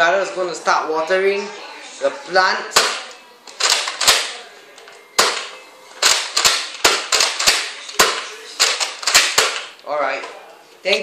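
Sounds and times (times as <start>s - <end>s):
toy dart blaster clacks: 5.2s - 9.7s.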